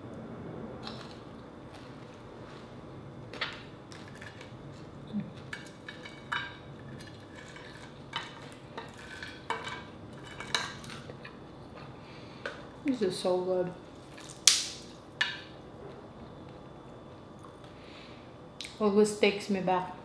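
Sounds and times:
quiet chewing: 0:17.4 - 0:17.8.

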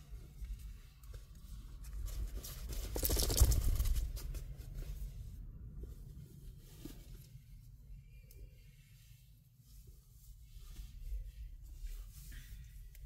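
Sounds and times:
rustling and handling noise: 0:00.0 - 0:08.2.

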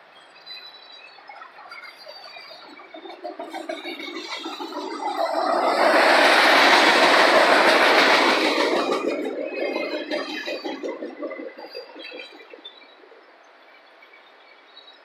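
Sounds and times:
train wheels rumbling on rails: 0:01.6 - 0:13.2
wheels clacking over rail joints: 0:02.6 - 0:12.9.

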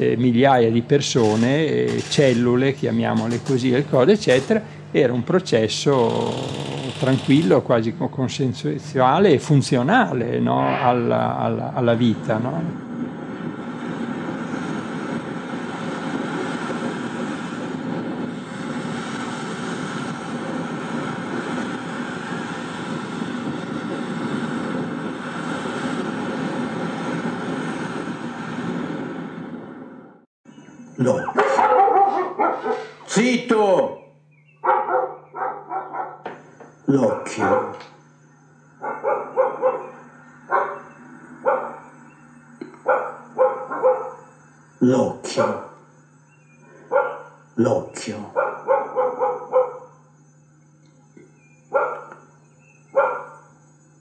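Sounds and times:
faint hum: 0:00.0 - 0:54.0
steady rushing drone: 0:08.8 - 0:54.0
dog barking: 0:31.1 - 0:33.1, 0:34.6 - 0:36.3, 0:37.1 - 0:37.8, 0:38.8 - 0:42.0, 0:42.8 - 0:44.3, 0:46.9 - 0:47.4, 0:48.3 - 0:50.0, 0:51.7 - 0:52.2, 0:52.9 - 0:53.5.

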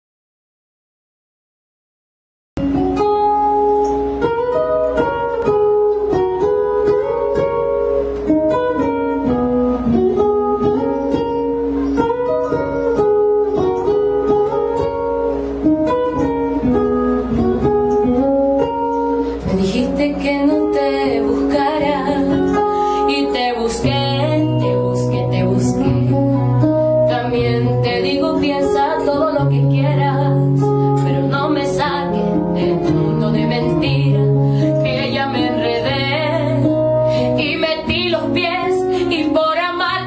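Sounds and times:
acoustic guitar picking: 0:02.6 - 0:40.0
woman singing: 0:19.4 - 0:40.0.

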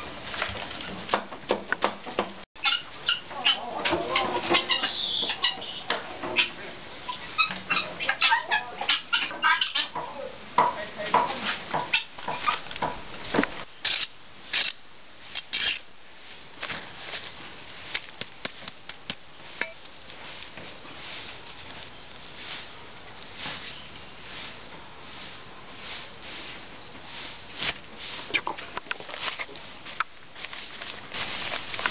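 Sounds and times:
chickens clucking: 0:00.8 - 0:13.2, 0:28.0 - 0:29.6.

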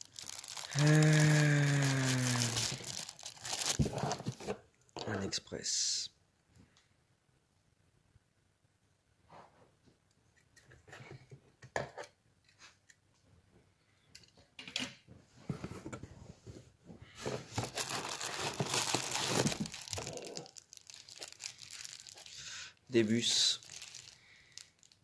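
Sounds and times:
bubble wrap crinkling: 0:00.0 - 0:04.5, 0:17.4 - 0:25.0.

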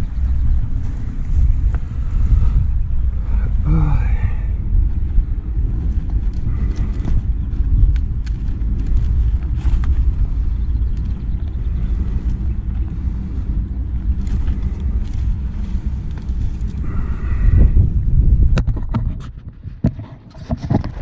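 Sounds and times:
wind buffeting microphone: 0:00.0 - 0:21.0
backpack clicks and rustles: 0:05.5 - 0:16.8.

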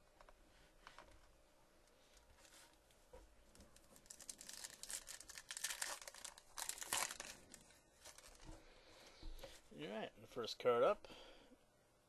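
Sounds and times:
plastic wrapper crinkling as torn open: 0:03.6 - 0:08.5.

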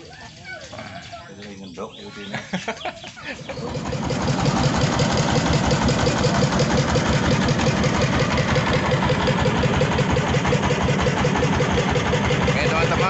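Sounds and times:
boat engine running: 0:03.2 - 0:13.0.

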